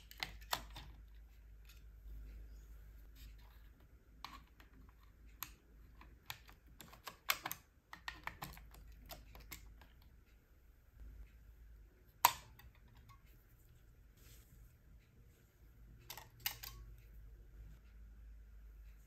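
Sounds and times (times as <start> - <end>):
screwdriver clicking against batteries: 5.3 - 10.0.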